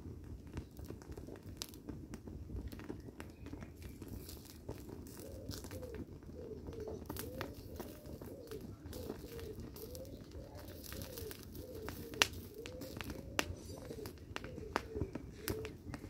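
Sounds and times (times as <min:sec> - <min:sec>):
fire crackling and popping: 0:00.0 - 0:16.0
dove cooing: 0:04.0 - 0:16.0.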